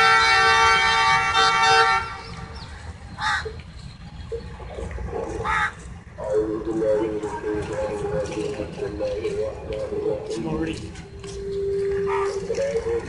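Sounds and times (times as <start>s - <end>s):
locomotive horn blast: 0.0s - 2.6s
crow cawing: 3.2s - 3.6s, 5.4s - 5.9s.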